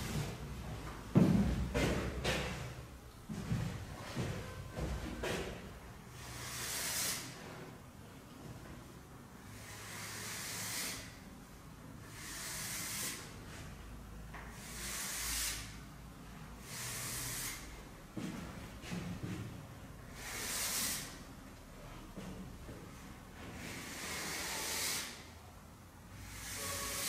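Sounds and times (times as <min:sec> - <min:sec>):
chalk scraping on blackboard: 0:06.2 - 0:07.4, 0:12.2 - 0:13.3.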